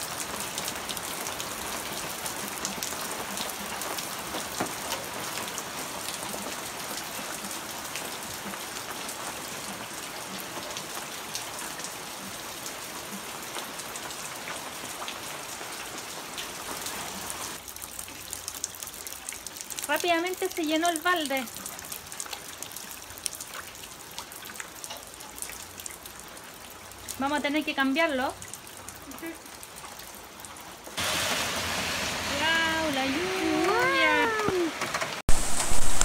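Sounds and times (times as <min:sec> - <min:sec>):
heavy rain falling: 0:00.0 - 0:36.0
raindrop hits: 0:30.9 - 0:36.0.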